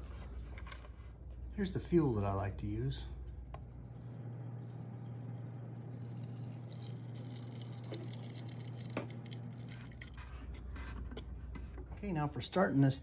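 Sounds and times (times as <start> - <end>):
fuel pouring into plastic tank: 4.6 - 10.6.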